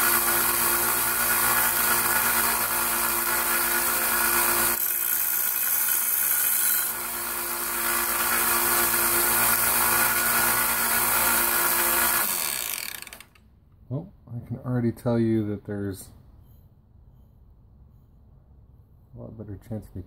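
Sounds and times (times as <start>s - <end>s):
belt sander motor hum: 0.0s - 13.4s.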